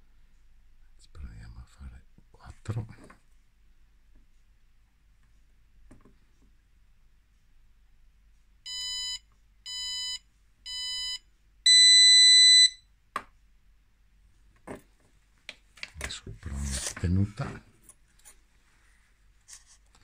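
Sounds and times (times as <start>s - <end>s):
buzzer beeping: 8.7s - 12.8s.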